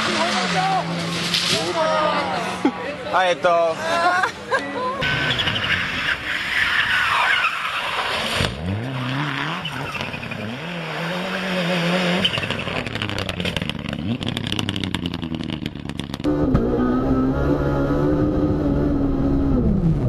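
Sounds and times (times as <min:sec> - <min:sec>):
car engine revving: 0:07.8 - 0:20.0.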